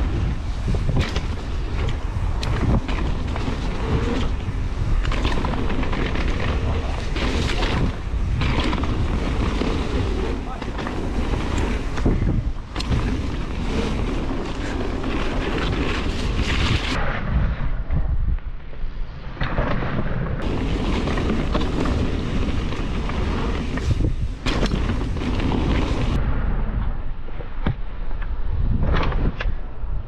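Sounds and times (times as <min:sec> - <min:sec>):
bike knocks and rattles: 0:00.0 - 0:17.0, 0:20.4 - 0:26.2
wind buffeting microphone: 0:00.0 - 0:30.0.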